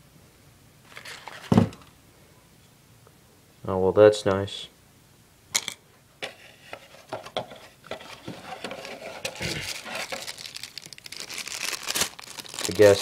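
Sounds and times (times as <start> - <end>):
plastic bag crinkling: 9.2 - 13.0.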